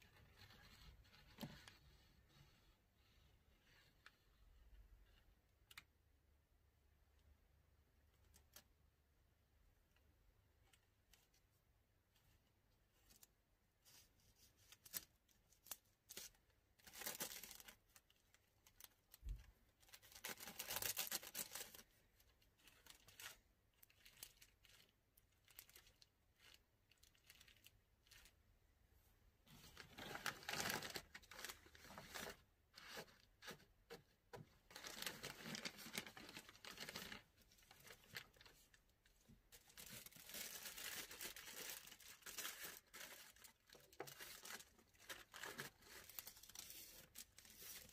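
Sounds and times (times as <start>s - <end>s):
plastic bag crinkling: 22.6s - 28.4s, 29.6s - 33.0s, 34.6s - 38.8s, 39.5s - 47.9s.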